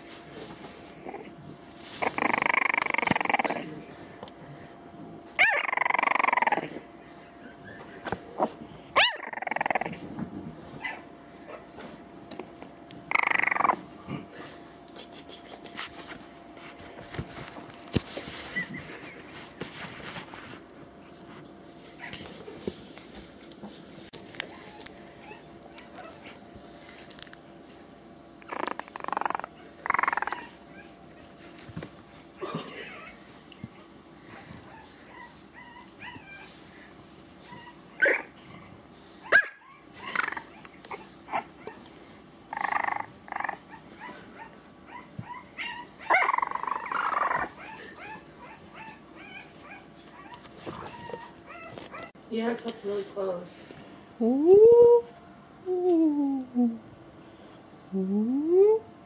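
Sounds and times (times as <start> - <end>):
puppy yapping and whimpering: 2.0 - 3.6, 5.4 - 6.8, 9.0 - 10.0, 10.8 - 11.8, 13.1 - 13.9, 24.5 - 26.4, 28.5 - 31.4, 34.4 - 36.6, 37.4 - 38.4, 39.2 - 41.9, 42.5 - 52.2.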